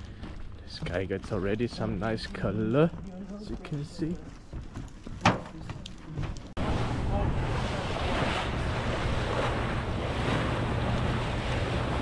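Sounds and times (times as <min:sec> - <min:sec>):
low engine hum: 0:06.6 - 0:12.0
water rushing past hull: 0:06.6 - 0:12.0.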